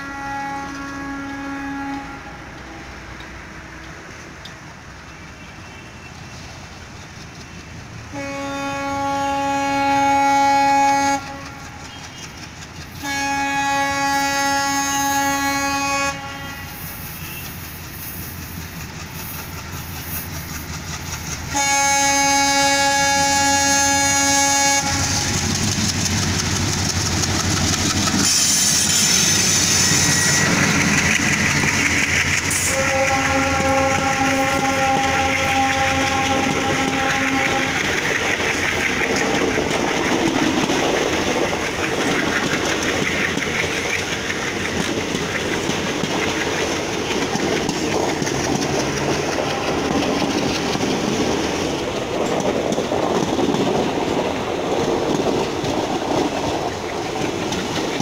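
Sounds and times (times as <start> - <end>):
locomotive horn blasts: 0.0 - 2.5, 8.1 - 11.8, 13.0 - 17.5, 21.5 - 25.4, 32.5 - 37.9
train wheels clattering: 0.0 - 15.7, 16.4 - 58.0.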